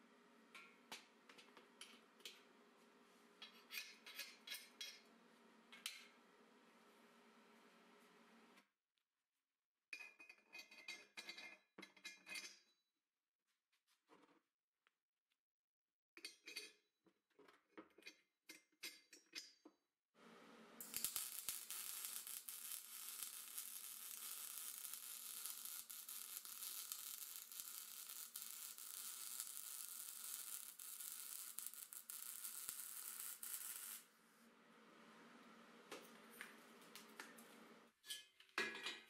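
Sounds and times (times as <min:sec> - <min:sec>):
arc welding crackling: 0:20.8 - 0:34.1.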